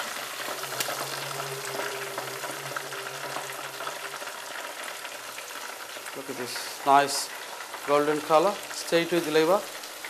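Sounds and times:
oil sizzling and crackling: 0.0 - 10.0.

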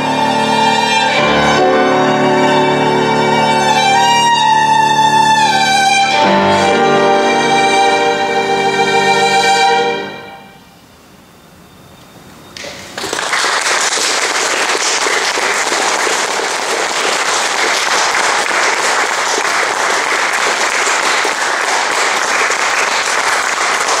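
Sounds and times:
audience applauding: 12.6 - 24.0.

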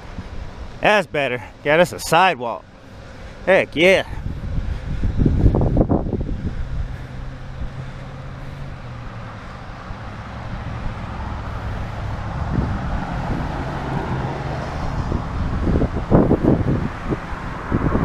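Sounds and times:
road traffic hiss: 0.0 - 18.0
wind buffets on microphone: 4.0 - 9.2, 9.8 - 18.0
wind rumbling on microphone: 4.1 - 18.0.

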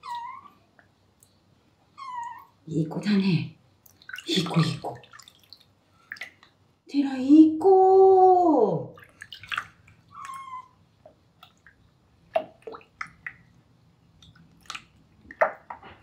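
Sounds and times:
water splashing in a sink: 3.8 - 6.6, 8.9 - 16.0.

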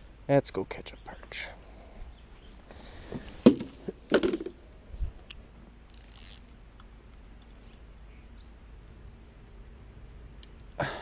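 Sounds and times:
knocks and thumps on wooden dock: 3.1 - 4.6.

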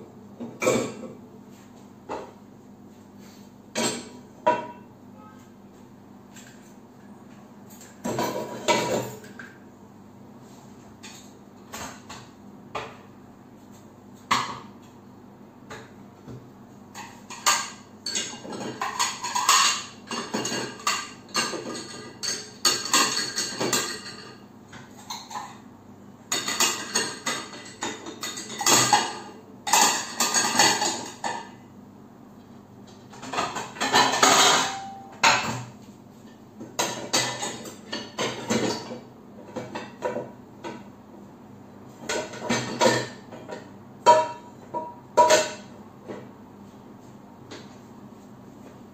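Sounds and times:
dishes clattering in dishwasher rack: 0.4 - 1.2, 3.7 - 5.3, 7.7 - 9.6, 16.9 - 25.6, 26.3 - 31.6, 33.0 - 35.8, 36.7 - 40.8, 42.0 - 46.2.

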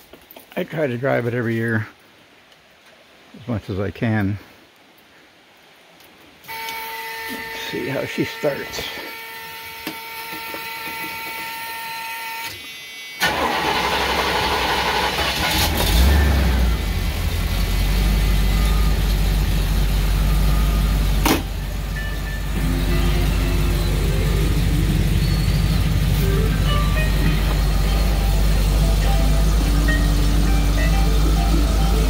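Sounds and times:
car engine starting and idling: 13.2 - 32.0.

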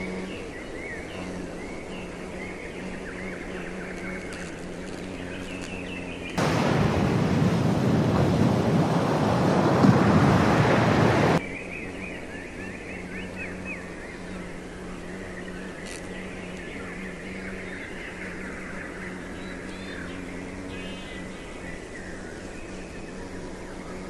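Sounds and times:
small birds chirping: 0.0 - 6.6, 11.2 - 24.0
waves breaking on shore: 6.4 - 11.4.

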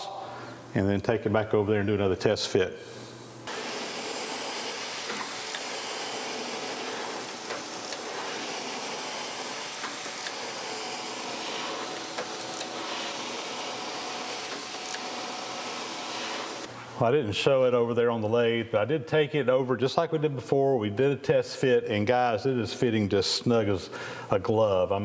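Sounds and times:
grinding wheel hissing on metal: 3.5 - 16.7.

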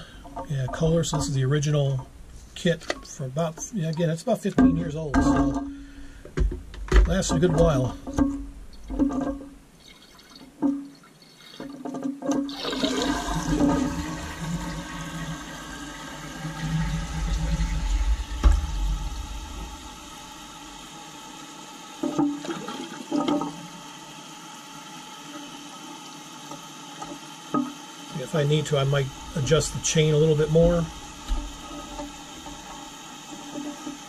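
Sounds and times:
toilet flushing: 0.0 - 2.0, 9.0 - 34.0
fill valve hissing: 0.0 - 6.5, 12.5 - 34.0.

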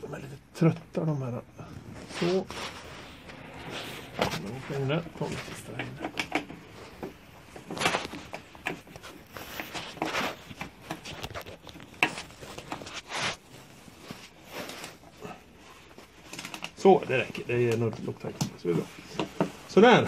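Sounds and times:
fleece sleeve rustling: 1.7 - 20.0.

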